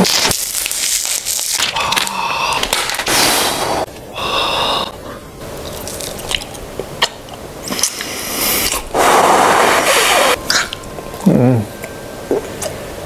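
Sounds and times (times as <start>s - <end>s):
plastic package crackling: 0.0s - 3.1s.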